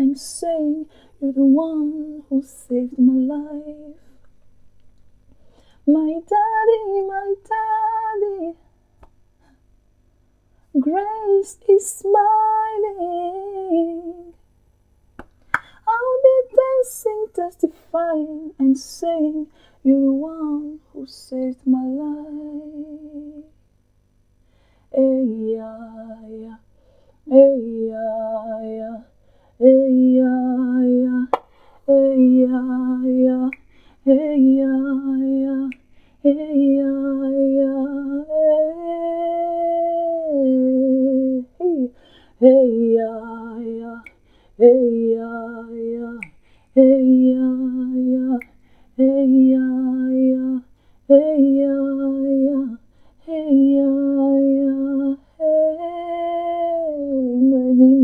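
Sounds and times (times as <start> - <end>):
woman singing wordless notes: 0.0 - 4.1, 5.8 - 8.7, 15.8 - 23.6, 24.9 - 58.0
singer breathing: 5.3 - 5.9, 19.5 - 19.8, 24.4 - 24.9, 26.7 - 27.2, 29.2 - 29.6, 31.5 - 31.9, 33.6 - 34.1, 35.8 - 36.2, 41.9 - 42.4, 44.1 - 44.6, 46.4 - 46.8, 48.5 - 49.0, 52.8 - 53.2.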